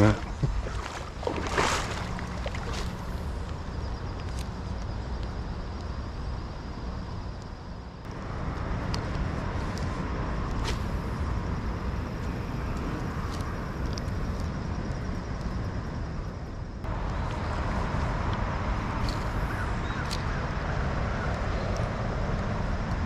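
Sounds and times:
creek water: 0.0 - 4.6.

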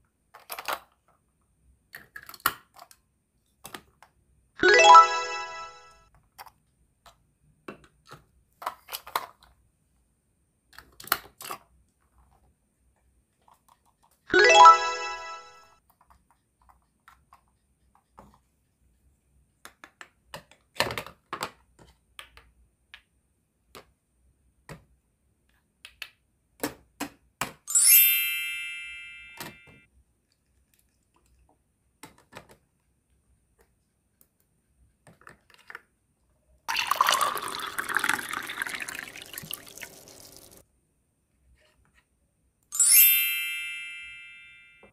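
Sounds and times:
bright chime: 4.6 - 6.0, 14.4 - 15.7, 27.7 - 29.9, 42.7 - 44.9
water pouring into plastic cup: 36.7 - 40.6.

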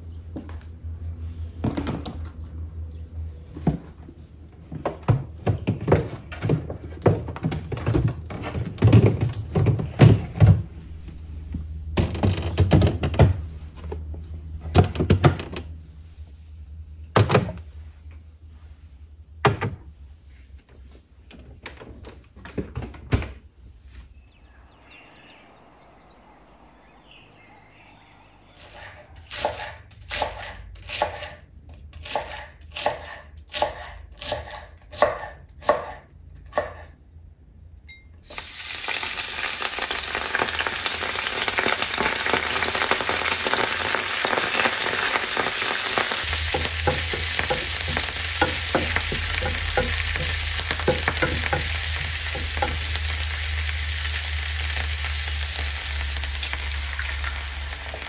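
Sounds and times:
faint outdoor ambience: 0.0 - 32.8, 33.4 - 58.0
plastic containers clattering: 4.7 - 10.7.

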